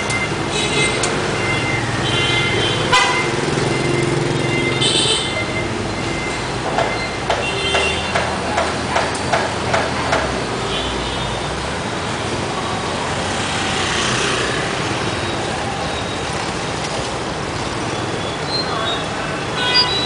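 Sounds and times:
traffic engines idling: 0.0 - 20.0
knocks: 6.6 - 10.4.

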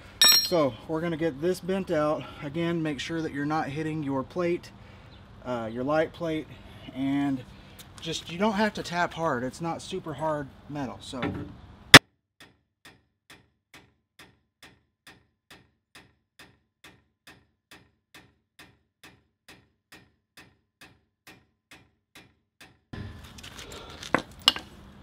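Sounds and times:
outdoor background noise: 0.0 - 12.0, 23.0 - 25.0.

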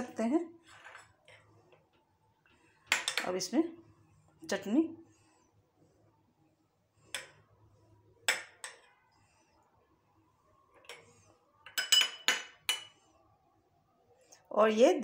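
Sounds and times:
metal spoon clinking against glass: 11.6 - 13.0.

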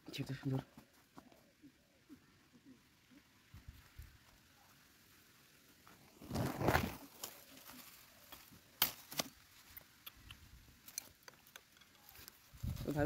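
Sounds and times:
leaves and sticks rustling: 2.6 - 13.0.

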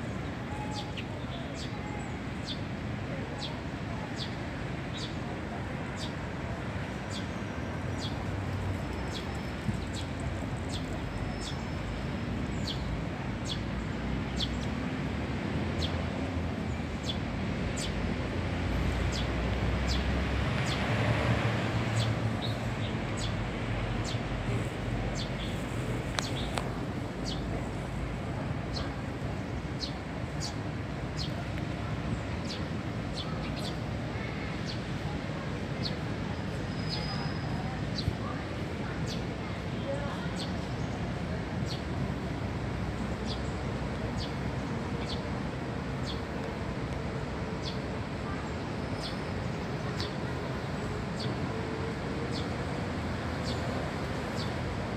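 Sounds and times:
sparrows chirping: 6.8 - 14.7, 18.8 - 20.9, 22.0 - 27.9, 28.6 - 31.5, 32.1 - 34.9.

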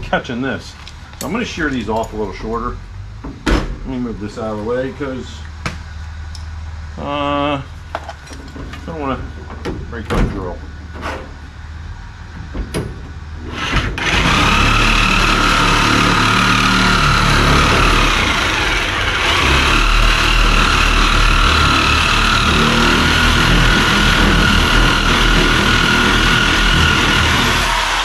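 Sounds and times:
power shears motor whine: 13.4 - 28.0
power shears clicking: 13.5 - 28.0.

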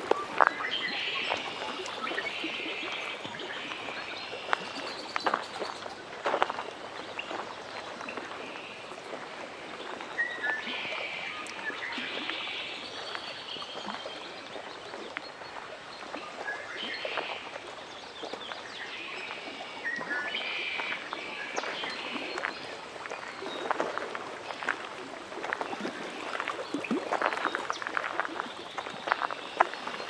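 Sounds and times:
lapping water: 0.0 - 30.0.

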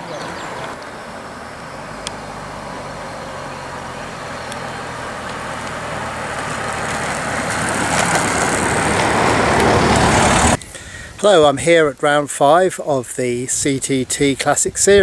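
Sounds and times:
car engine hum: 0.0 - 10.6
tyre and bicycle wheel road noise: 0.0 - 11.0.

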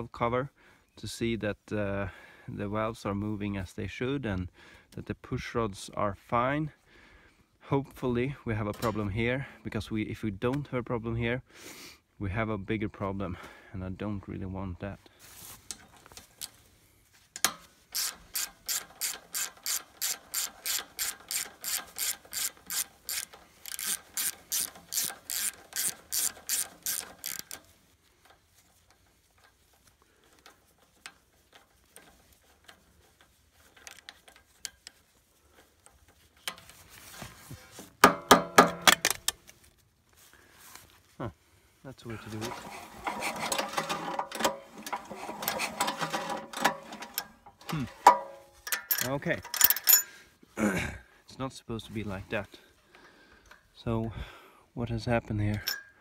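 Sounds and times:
socket ratchet clicking: 17.4 - 27.7, 43.6 - 50.1.

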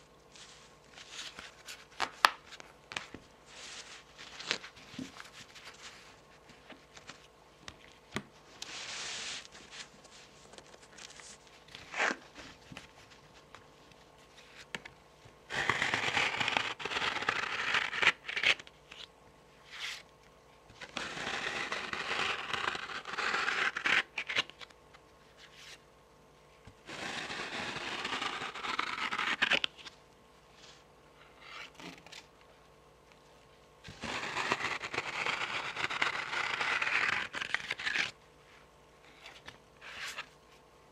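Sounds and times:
fingernails scratching cards: 15.5 - 18.6, 26.9 - 29.7, 33.9 - 38.1.

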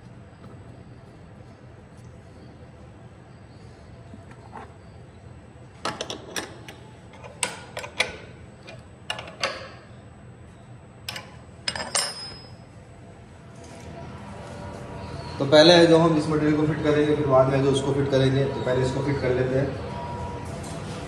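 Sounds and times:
spanner clinking on metal nut: 5.9 - 9.7, 11.1 - 12.6.

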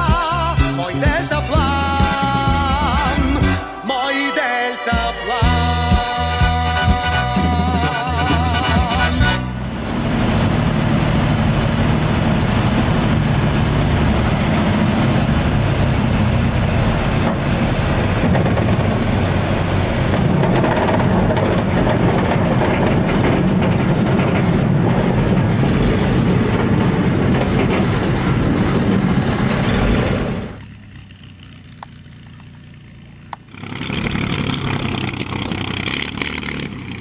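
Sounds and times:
light aircraft engine and propeller: 8.7 - 37.0.

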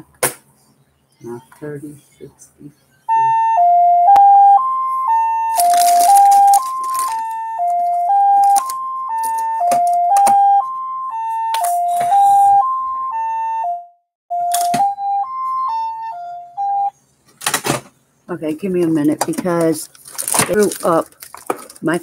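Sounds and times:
electronic phone ringtone: 3.1 - 17.0
handling rustling and clicks: 5.5 - 10.4.

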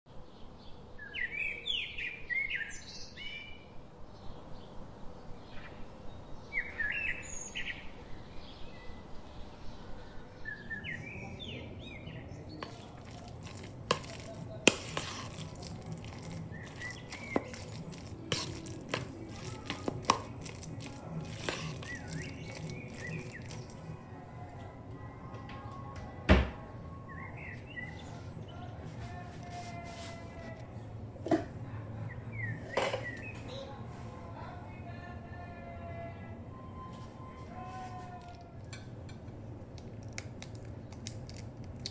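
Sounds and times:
spoon scraping mashed potato: 12.5 - 24.0, 27.6 - 30.8
spoon knocking on mixing bowl: 12.6 - 23.7.

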